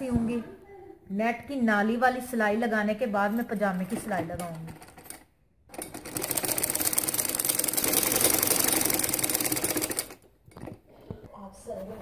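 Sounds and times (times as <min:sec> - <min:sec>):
sewing machine stitching: 0:04.4 - 0:10.8.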